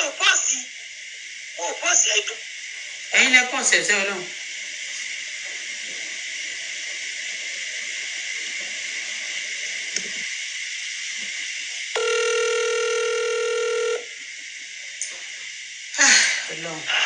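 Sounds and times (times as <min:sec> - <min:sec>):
phone line hiss: 0:11.9 - 0:14.3
steady telephone tone: 0:12.0 - 0:14.1.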